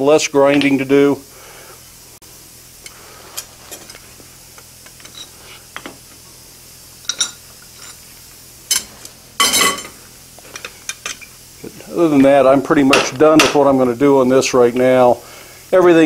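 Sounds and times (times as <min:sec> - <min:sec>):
metal clinks and knocks: 0:08.7 - 0:10.0.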